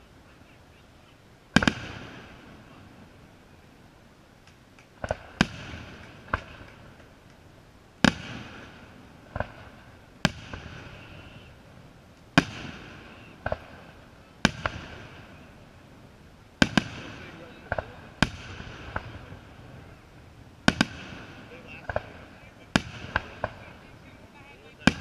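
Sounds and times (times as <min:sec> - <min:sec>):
firework shells bursting: 0:04.4 - 0:15.8, 0:16.6 - 0:25.0.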